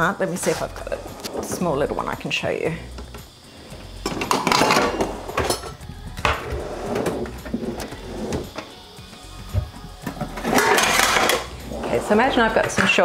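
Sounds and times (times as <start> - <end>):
metal trays and pans clattering: 4.0 - 6.4, 10.4 - 11.5.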